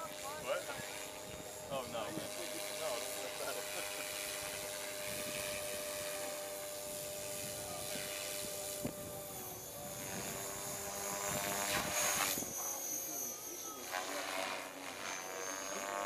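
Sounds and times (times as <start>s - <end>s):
model helicopter rotor whine: 0.0s - 16.0s.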